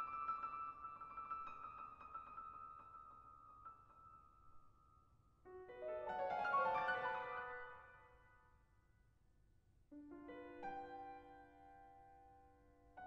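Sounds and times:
grand piano playing softly: 5.5s - 8.1s, 10.0s - 13.0s.

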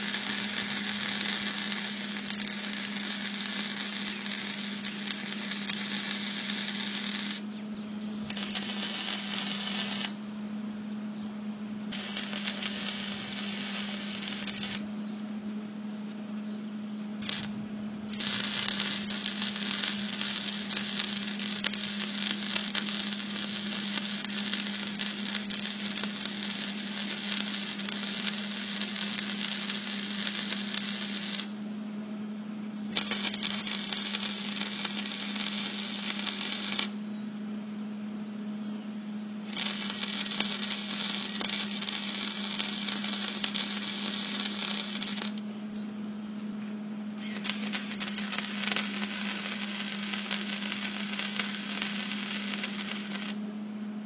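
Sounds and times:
arc welder crackling and sizzling: 0.0s - 10.6s, 11.6s - 15.4s, 17.0s - 37.2s, 38.6s - 54.0s
steady low hum: 0.0s - 54.0s.

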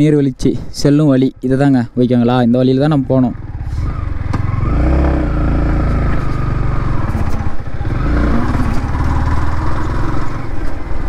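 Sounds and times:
motorcycle engine running: 3.3s - 11.0s.

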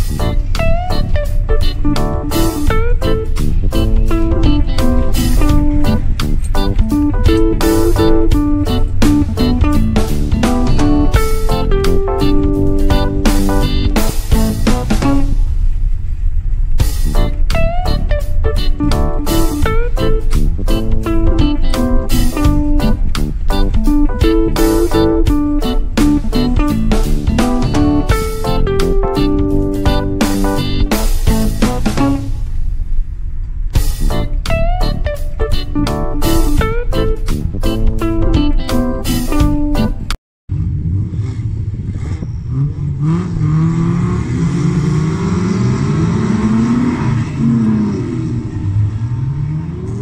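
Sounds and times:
guitar music with drumbeat: 0.0s - 15.9s, 16.8s - 32.8s, 33.5s - 40.2s
race car engines revving: 40.5s - 50.0s.

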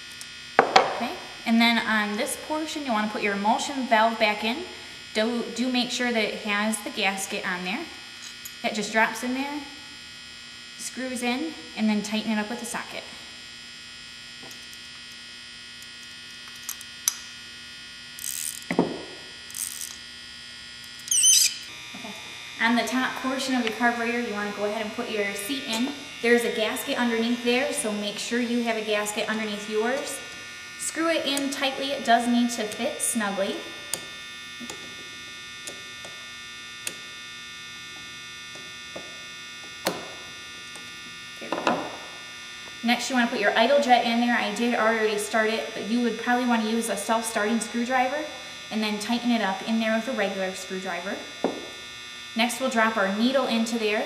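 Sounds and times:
steady electrical hum: 0.0s - 54.0s
brief wavering squeak: 21.0s - 21.7s.

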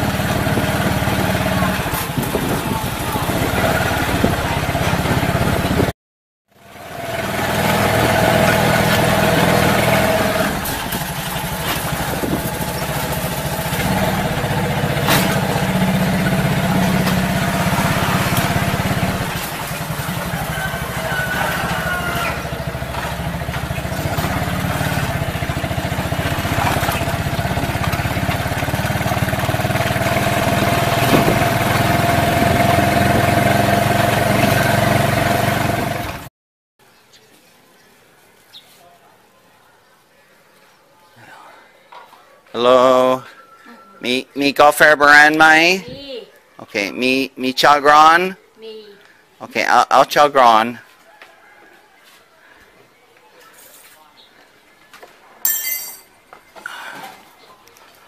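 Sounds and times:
small motorcycle engine running: 0.0s - 5.9s, 6.5s - 36.3s.

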